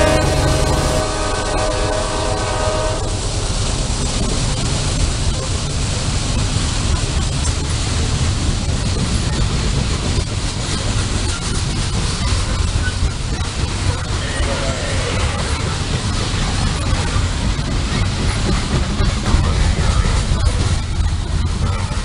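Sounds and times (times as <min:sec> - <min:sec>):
locomotive horn: 0:00.0 - 0:03.4
train rumbling past: 0:00.0 - 0:22.0.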